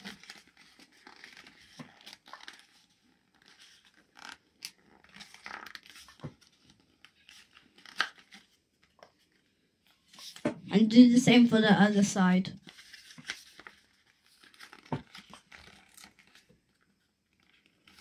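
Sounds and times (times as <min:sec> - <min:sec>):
sharp paper crackle: 0:00.0 - 0:08.5, 0:12.6 - 0:18.0
paper rustling and crinkling: 0:00.0 - 0:10.4, 0:12.6 - 0:18.0.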